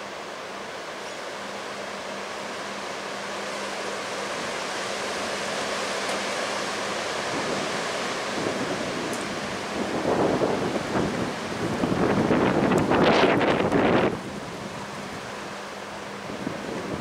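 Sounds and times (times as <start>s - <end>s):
wind rushing through trees: 0.0s - 17.0s.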